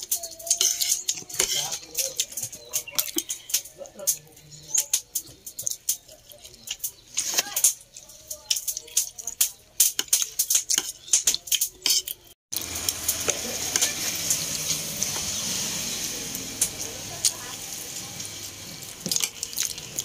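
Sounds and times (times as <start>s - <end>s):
wet chewing clicks: 0.1s - 13.5s, 18.4s - 20.0s.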